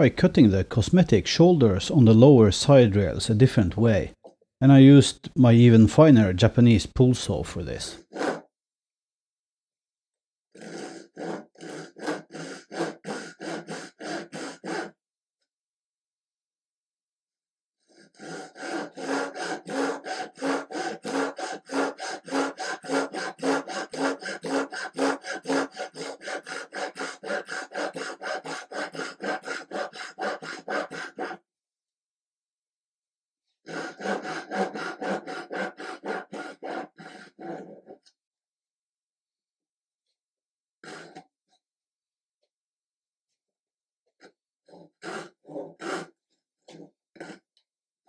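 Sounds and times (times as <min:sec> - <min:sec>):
hand saw cutting wood: 0:07.8 - 0:08.5, 0:10.5 - 0:15.0, 0:17.8 - 0:31.4, 0:33.6 - 0:38.1, 0:40.8 - 0:41.3, 0:44.2 - 0:47.4.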